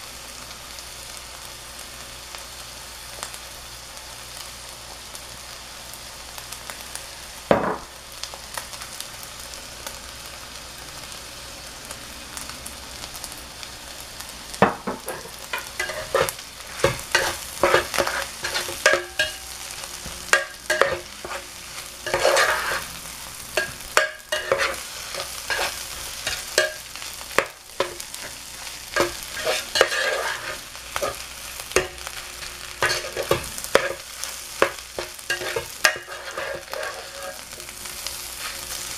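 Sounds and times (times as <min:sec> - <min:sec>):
rice sizzling in a skillet: 0:00.0 - 0:38.9
metal spatula scraping a pan: 0:14.9 - 0:38.8.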